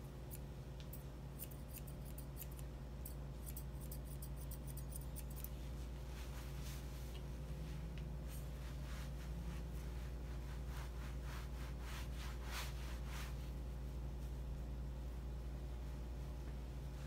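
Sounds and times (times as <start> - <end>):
steady low hum: 0.0 - 17.0
shears snipping hair: 0.2 - 5.7.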